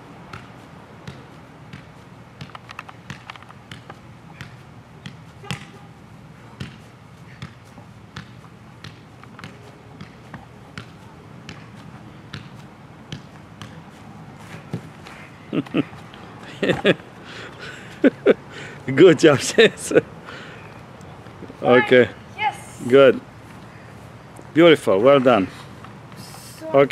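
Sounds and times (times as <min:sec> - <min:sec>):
foot tapping soccer ball: 0:00.3 - 0:05.8, 0:06.6 - 0:17.0.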